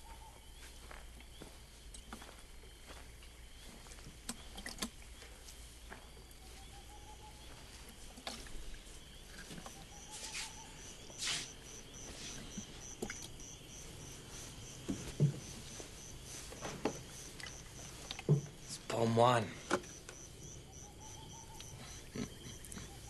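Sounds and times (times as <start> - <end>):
insects chirping: 0.0 - 23.0
repeated high chirp: 9.6 - 23.0.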